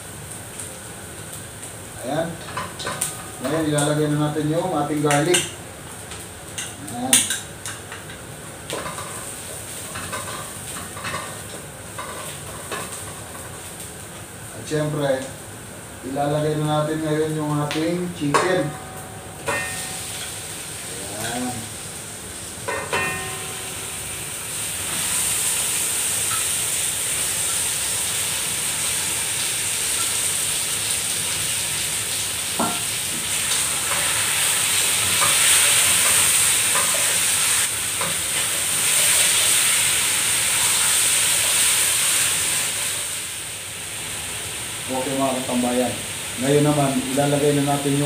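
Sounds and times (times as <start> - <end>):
chicken sizzling in hot oil: 0.0 - 18.7, 19.5 - 48.0
ringing clink: 22.7 - 23.6.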